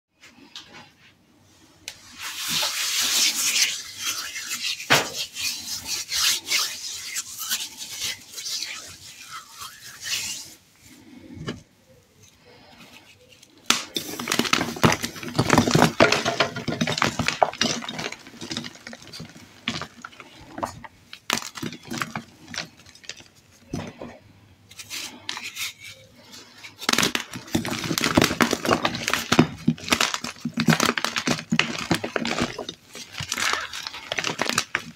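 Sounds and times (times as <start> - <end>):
chalk crunching and snapping: 1.9 - 10.6.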